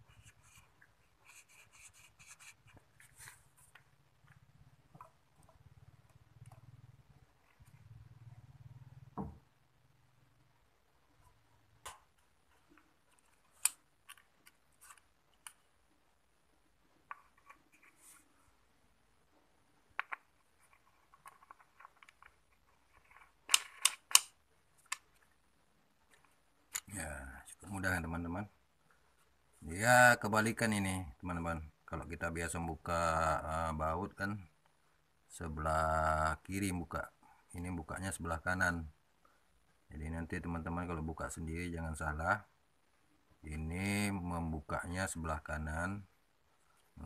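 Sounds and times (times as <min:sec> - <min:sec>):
low faint hum: 0:00.0 - 0:23.4
plastic and metal parts clicking: 0:21.1 - 0:25.2.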